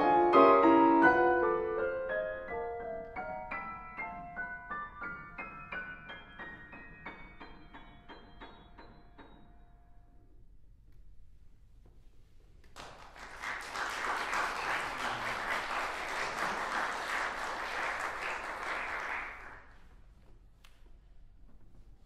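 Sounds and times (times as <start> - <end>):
audience applauding: 12.8 - 19.8.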